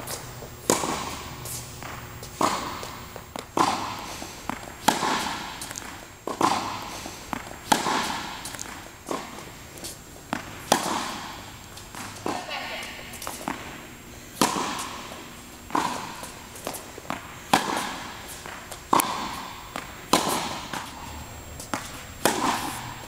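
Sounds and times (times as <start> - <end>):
racket hitting tennis ball: 0.0 - 23.0.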